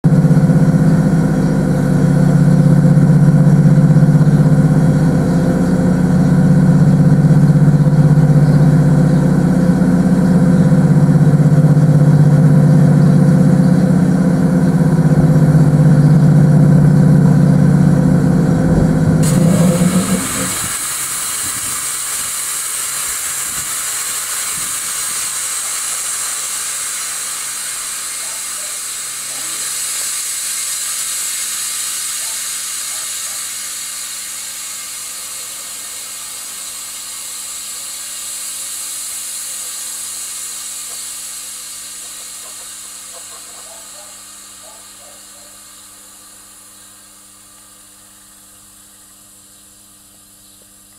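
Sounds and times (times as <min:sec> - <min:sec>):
air hissing from locomotive: 0:17.9 - 0:48.7.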